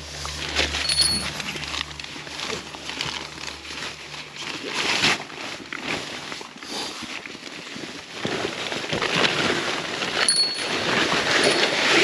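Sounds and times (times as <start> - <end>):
nylon fabric rustling: 0.0 - 12.0
metallic clink: 0.8 - 1.4, 10.2 - 10.8.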